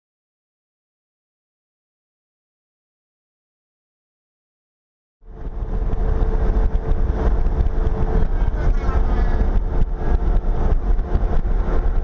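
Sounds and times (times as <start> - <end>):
road and wind noise: 5.2 - 12.0
truck engine hum: 5.2 - 12.0.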